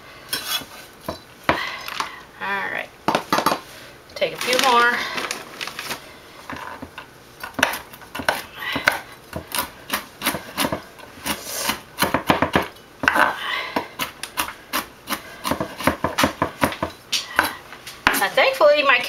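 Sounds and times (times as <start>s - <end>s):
knife chopping on wooden board: 7.5s - 13.2s, 13.9s - 17.5s.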